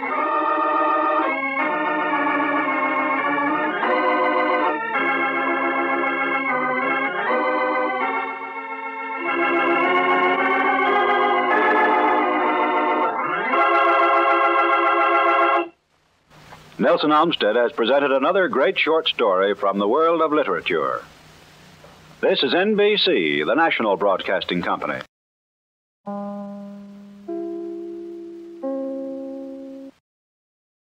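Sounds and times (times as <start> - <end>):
organ playing chords: 0.0 - 15.7, 26.1 - 30.0.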